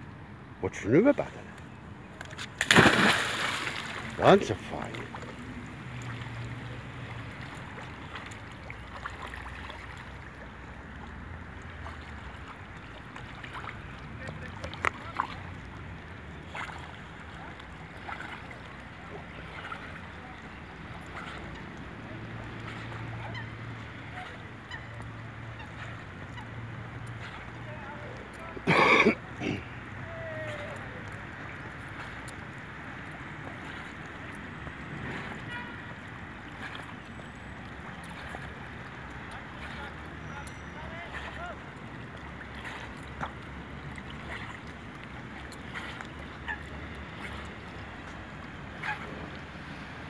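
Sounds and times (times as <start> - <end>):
lake water sloshing and lapping: 0.1 - 50.0
dog splashing in water: 2.6 - 6.1.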